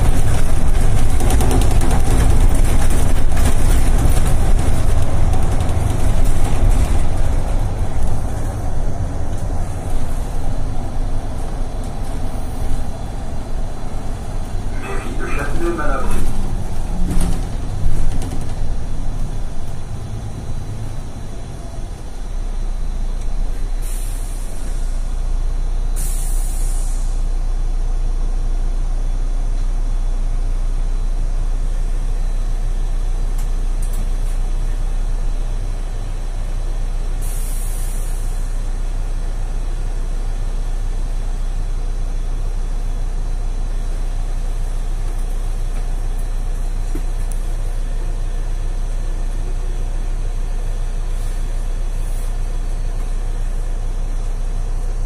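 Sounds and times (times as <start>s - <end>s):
bus engine idling: 0.0s - 55.0s
air brake hisses: 23.8s - 25.0s, 26.0s - 27.2s, 37.2s - 38.5s, 51.2s - 52.4s.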